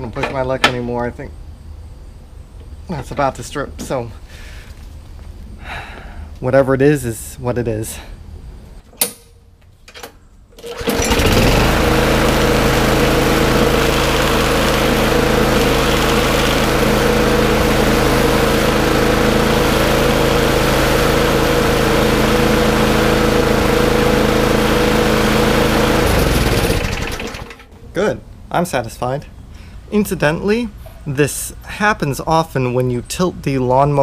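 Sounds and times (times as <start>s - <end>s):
lawn mower engine running: 10.6s - 27.8s.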